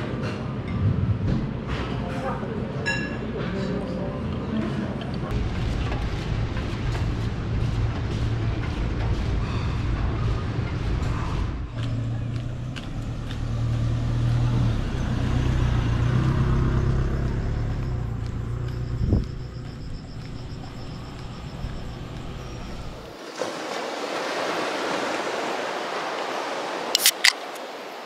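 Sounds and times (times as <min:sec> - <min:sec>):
vehicle engine humming: 0:05.3 - 0:23.2.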